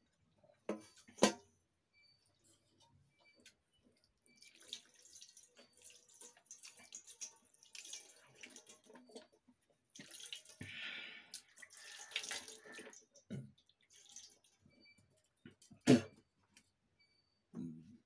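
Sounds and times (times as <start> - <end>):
water pouring and splashing: 4.3 - 14.8.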